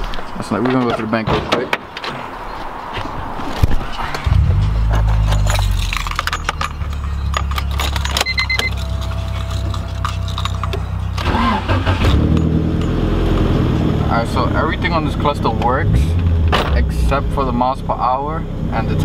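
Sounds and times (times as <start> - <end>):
low engine hum: 3.9 - 19.0
keys jangling and clicking: 4.6 - 13.0
short beeping chime: 6.8 - 10.3.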